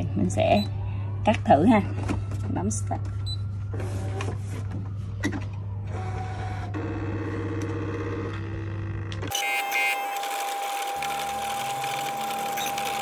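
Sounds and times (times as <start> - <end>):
cutting machine motors whirring: 5.9 - 13.0.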